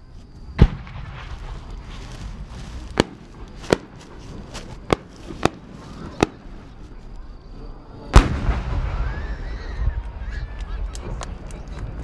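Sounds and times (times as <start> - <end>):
firework cracks: 0.5 - 7.2, 8.1 - 12.0
firework shell bang with rumbling echo: 0.6 - 4.2, 4.8 - 6.7, 8.1 - 11.9.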